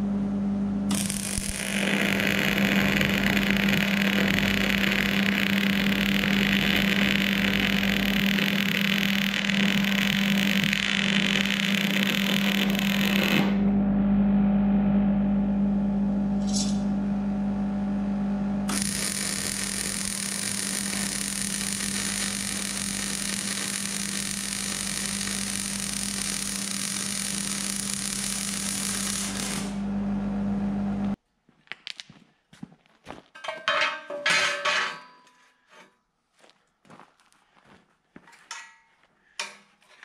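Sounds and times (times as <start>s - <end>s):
steady low hum: 0.0s - 31.2s
welding arc crackling and hissing: 0.9s - 13.6s, 18.7s - 29.8s.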